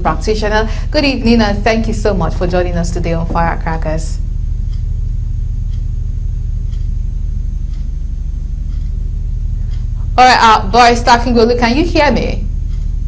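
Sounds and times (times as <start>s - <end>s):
low electrical hum: 0.0s - 13.0s
faint ticks: 4.2s - 10.1s, 12.5s - 13.0s.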